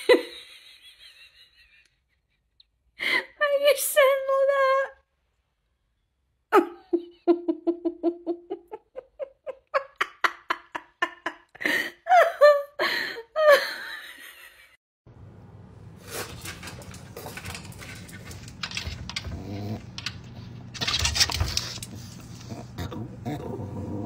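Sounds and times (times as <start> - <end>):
person laughing: 6.6 - 14.8.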